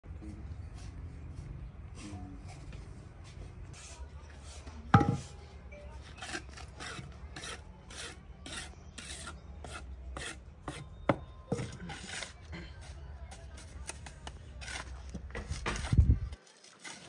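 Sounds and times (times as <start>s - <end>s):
trowel scraping cement: 6.2s - 10.9s, 11.6s - 12.5s, 14.0s - 17.0s.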